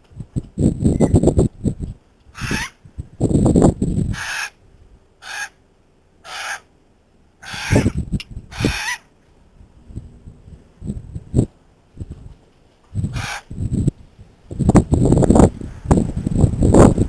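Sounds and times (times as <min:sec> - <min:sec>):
birds giving harsh calls: 0:02.3 - 0:02.8, 0:04.1 - 0:04.6, 0:05.2 - 0:05.6, 0:06.2 - 0:06.7, 0:07.4 - 0:09.2, 0:13.1 - 0:13.5.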